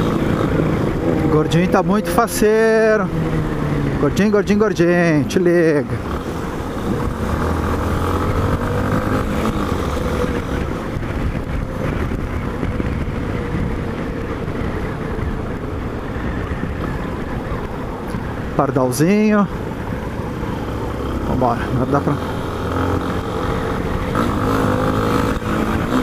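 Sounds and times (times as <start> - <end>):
motorcycle engine running: 0.0 - 26.0
wind buffeting microphone: 5.8 - 26.0.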